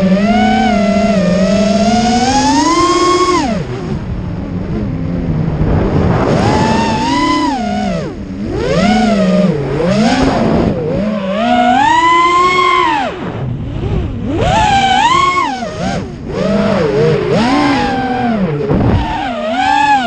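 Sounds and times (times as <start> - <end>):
drone motors whining: 0.0 - 20.0.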